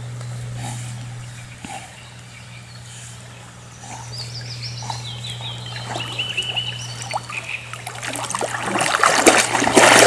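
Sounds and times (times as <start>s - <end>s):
bird chirping: 1.1s - 7.8s
dog splashing through water: 5.7s - 10.0s.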